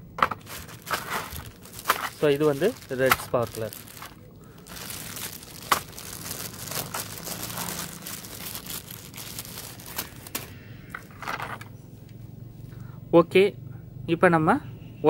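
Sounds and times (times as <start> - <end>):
plastic wrapping crinkling: 0.3 - 10.6.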